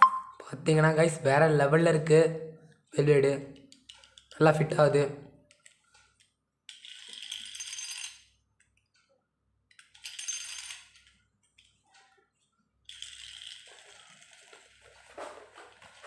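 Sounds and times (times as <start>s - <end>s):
spinning top whirring on tile: 6.7s - 8.3s, 9.7s - 11.2s, 12.8s - 14.9s.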